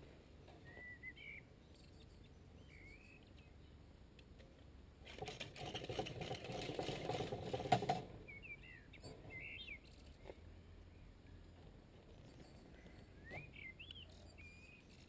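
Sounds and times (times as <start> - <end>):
bird chirping: 0.6 - 3.8, 8.2 - 15.0
steel bars rattling and clicking: 5.0 - 8.2.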